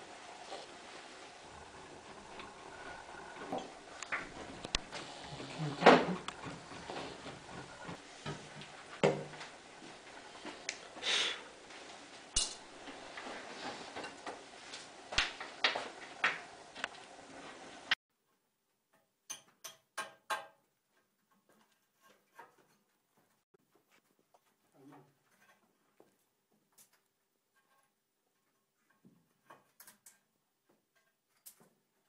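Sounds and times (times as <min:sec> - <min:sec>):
metal tool tapping on wood: 0:19.3 - 0:20.6.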